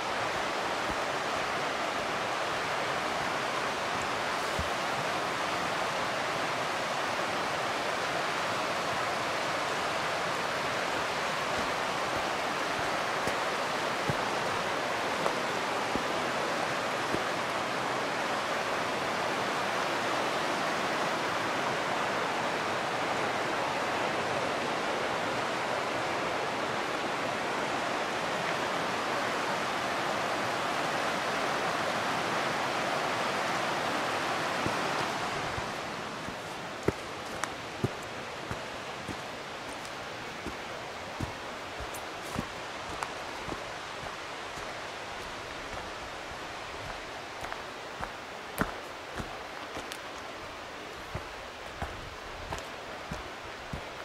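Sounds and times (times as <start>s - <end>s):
river rushing over rocks: 0.0s - 54.0s.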